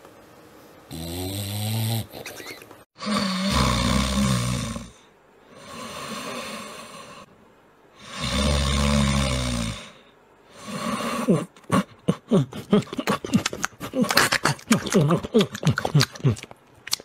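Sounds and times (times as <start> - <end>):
dogs snoring: 0.9 - 2.3, 3.0 - 7.3, 8.0 - 11.9.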